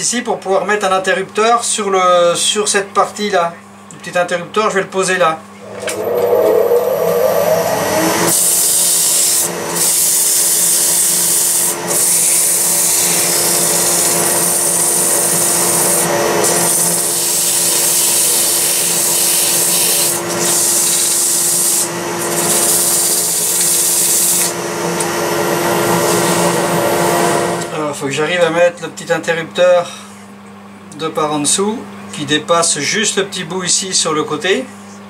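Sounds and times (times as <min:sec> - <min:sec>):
lathe motor hum: 0:05.6 - 0:27.8
sandpaper hissing on spinning wood: 0:08.3 - 0:24.5.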